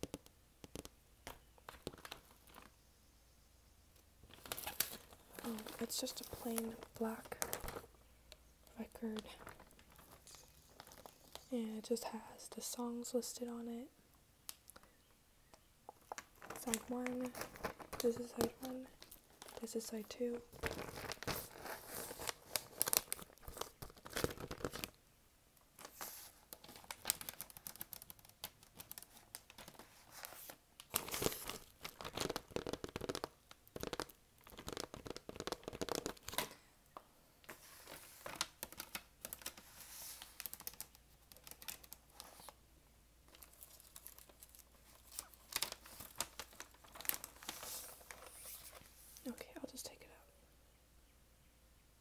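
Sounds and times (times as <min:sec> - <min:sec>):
paper sleeve crinkling and rustling: 0:04.3 - 0:07.9, 0:09.0 - 0:11.5, 0:16.0 - 0:24.9, 0:25.8 - 0:36.6, 0:37.4 - 0:42.6, 0:43.3 - 0:49.3.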